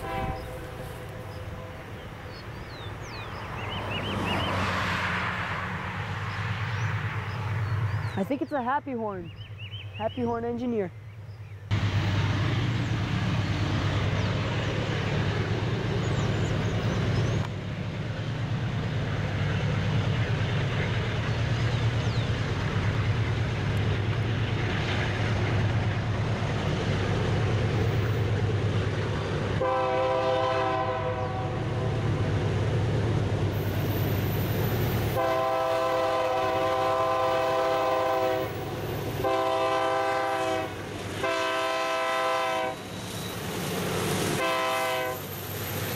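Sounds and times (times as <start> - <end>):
locomotive air horn blasts: 0.0 - 1.8, 29.6 - 31.6, 35.1 - 38.5, 39.2 - 42.8, 44.4 - 45.2
locomotive engine rumble: 5.3 - 45.9.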